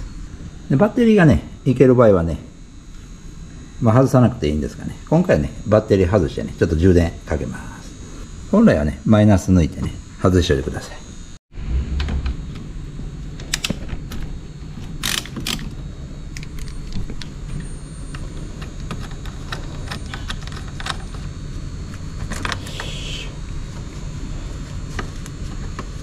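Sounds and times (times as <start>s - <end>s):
steady low hum: 0.0s - 26.0s
wrench clicking on metal: 15.0s - 15.7s.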